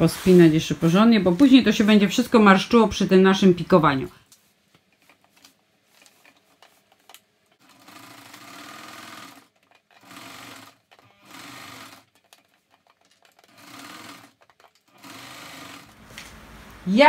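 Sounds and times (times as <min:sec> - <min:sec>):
sewing machine stitching: 0:06.1 - 0:16.1.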